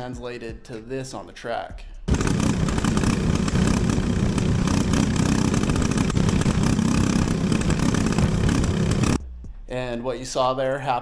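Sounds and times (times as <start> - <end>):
kart engine running: 2.1 - 9.2.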